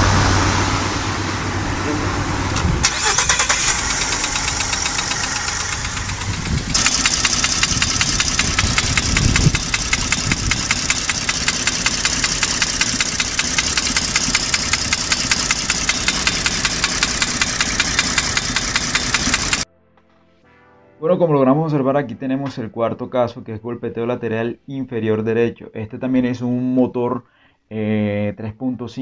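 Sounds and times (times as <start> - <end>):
engine running: 0.0 - 19.6
rapid engine knock: 3.7 - 19.6.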